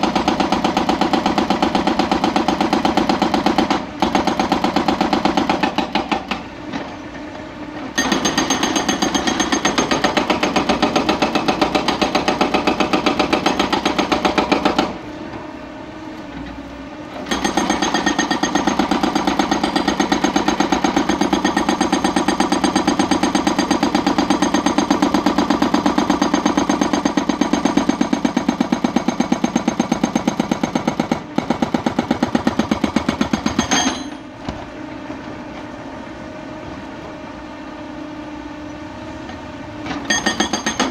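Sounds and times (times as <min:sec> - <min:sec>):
hydraulic breaker hammering rock: 0:00.0 - 0:07.0, 0:07.8 - 0:15.0, 0:17.1 - 0:34.3, 0:39.8 - 0:40.9.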